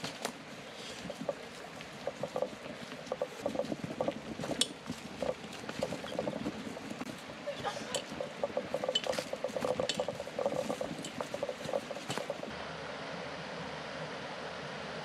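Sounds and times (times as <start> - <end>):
footsteps on dirt trail: 0.0 - 12.5
faint river water rushing: 0.0 - 15.0
bike clicks and knocks: 1.0 - 12.5.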